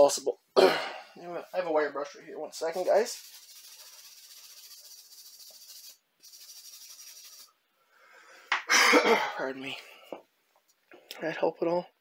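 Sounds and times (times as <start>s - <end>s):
wire brush scrubbing metal: 2.6s - 7.6s.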